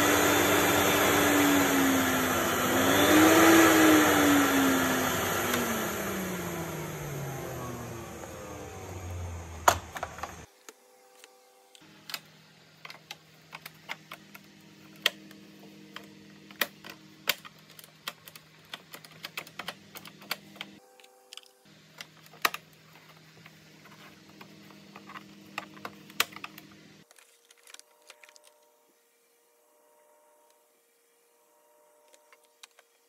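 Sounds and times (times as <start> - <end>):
plastic parts clicking and tapping: 12.0 - 28.7, 32.1 - 33.0.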